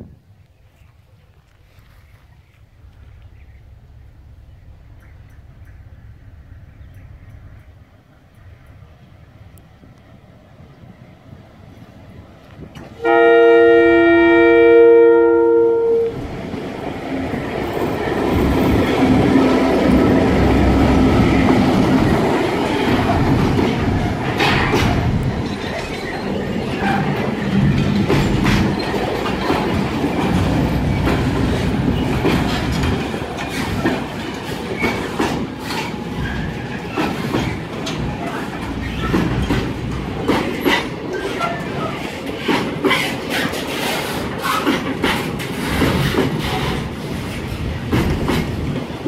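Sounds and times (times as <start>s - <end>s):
locomotive engine running: 1.7s - 10.1s, 16.0s - 42.1s
locomotive two-tone horn: 13.0s - 16.2s
wagon wheels clacking on rails: 16.2s - 49.0s.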